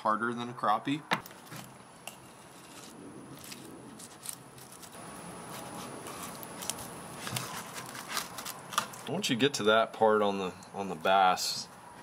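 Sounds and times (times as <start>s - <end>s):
knife cutting and scraping fish: 1.4s - 9.1s.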